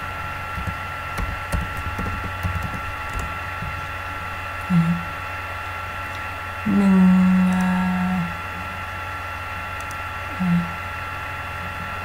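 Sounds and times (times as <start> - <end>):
steady electrical hum: 0.0 - 12.0
person saying um: 4.7 - 5.1, 10.4 - 10.8.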